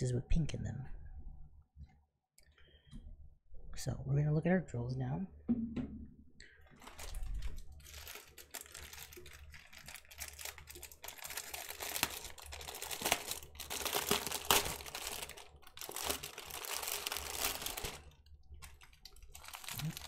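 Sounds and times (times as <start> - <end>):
plastic packaging crinkling: 6.7 - 20.0.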